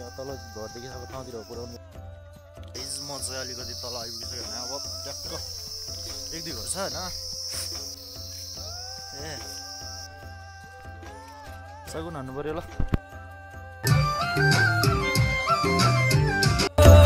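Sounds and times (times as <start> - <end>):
high insect buzz: 0.0 - 1.8, 2.7 - 11.4
background music with beat: 0.0 - 17.0.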